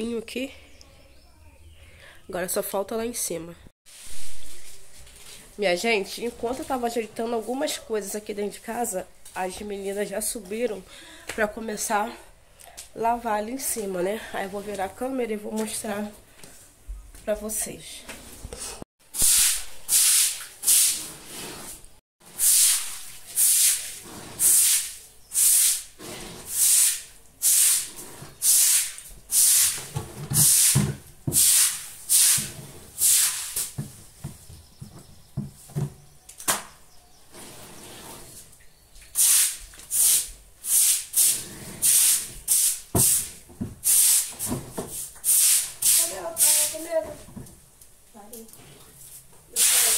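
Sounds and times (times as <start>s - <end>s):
broom scrubbing wet concrete floor: 3.9s - 5.6s, 19.0s - 33.8s, 39.1s - 47.0s, 48.9s - 49.9s.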